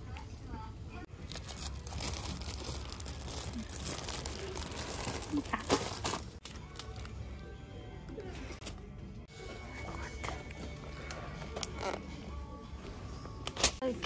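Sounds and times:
plastic packaging crinkling: 0:01.2 - 0:07.2.

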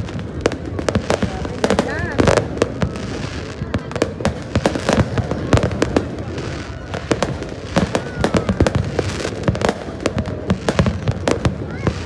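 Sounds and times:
fireworks bursting: 0:00.0 - 0:12.0.

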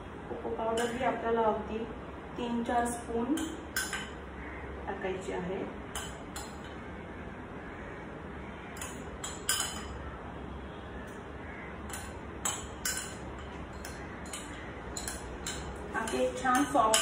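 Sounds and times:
faint background noise: 0:00.0 - 0:17.0
spoon clinking against glass bowls: 0:00.7 - 0:01.0, 0:03.4 - 0:04.2, 0:05.9 - 0:06.8, 0:08.8 - 0:10.0, 0:11.9 - 0:17.0.

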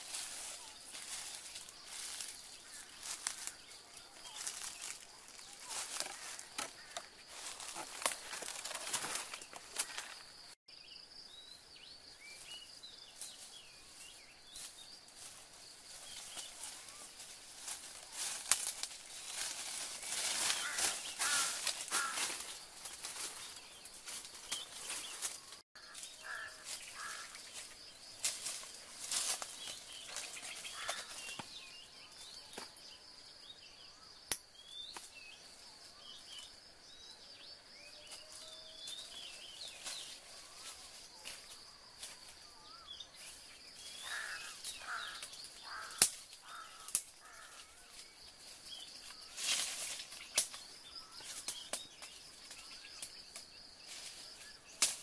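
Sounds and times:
footsteps in dry leaves: 0:00.0 - 0:10.5, 0:13.2 - 0:31.7, 0:38.2 - 0:42.5, 0:43.3 - 0:51.4
bird calls: 0:00.4 - 0:10.3, 0:19.2 - 0:28.0, 0:28.6 - 0:33.0, 0:42.4 - 0:49.4
twig snaps: 0:18.4 - 0:19.0, 0:34.3 - 0:35.1, 0:44.8 - 0:47.4, 0:54.8 - 0:55.0.

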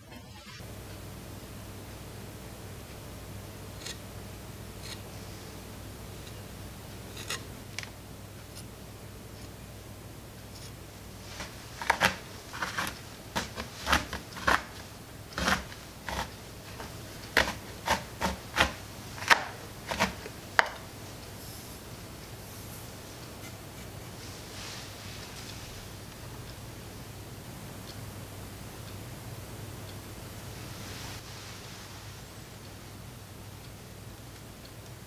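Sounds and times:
knife chopping on cutting board: 0:11.4 - 0:14.8, 0:15.4 - 0:20.8.

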